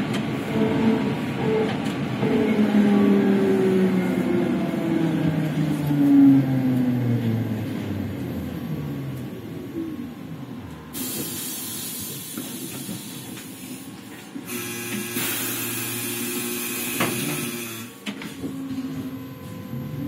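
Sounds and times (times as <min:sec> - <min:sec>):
compressed air hissing: 0:11.0 - 0:13.9.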